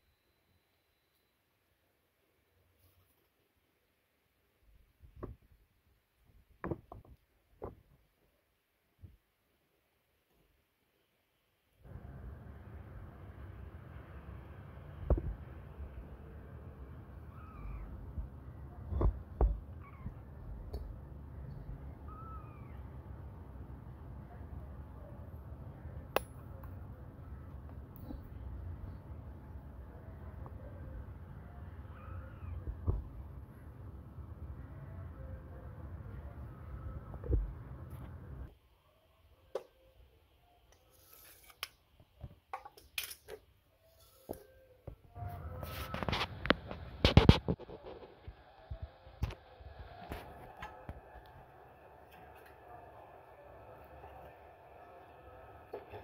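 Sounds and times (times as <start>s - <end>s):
kittens squeaking: 17.2s - 18.0s, 18.8s - 20.3s, 21.6s - 22.8s, 31.8s - 32.8s
kittens mewing: 31.8s - 32.8s.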